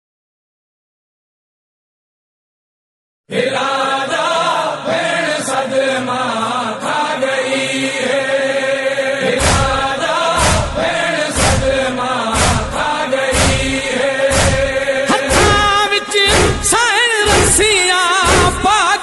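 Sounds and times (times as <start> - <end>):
lament chanted in wavering melody: 3.3 - 19.0
heavy thumps: 9.4 - 17.7, 18.3 - 18.7.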